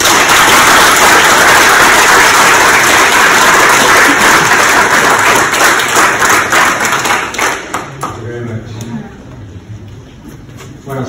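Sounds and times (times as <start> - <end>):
audience applauding: 0.0 - 8.2.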